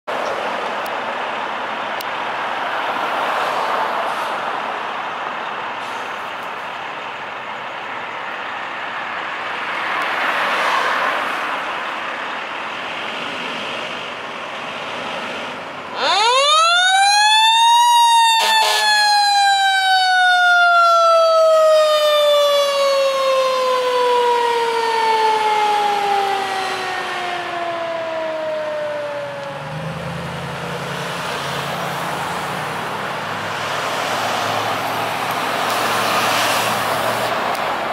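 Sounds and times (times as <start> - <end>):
diesel engine and road noise: 0.1 - 37.9
mechanical siren wailing: 16.0 - 30.3.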